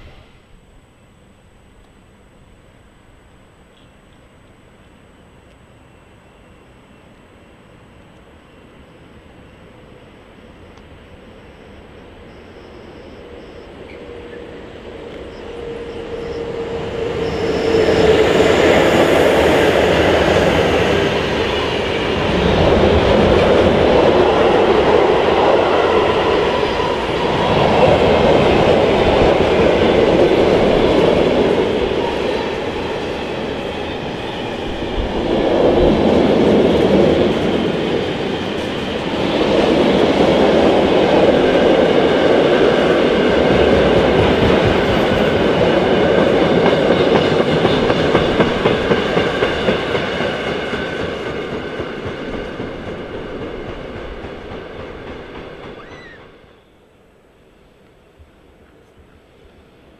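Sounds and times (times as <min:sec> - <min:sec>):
freight train wheels rumbling: 0:08.6 - 0:59.7
train wheel clacks: 0:42.5 - 0:56.2.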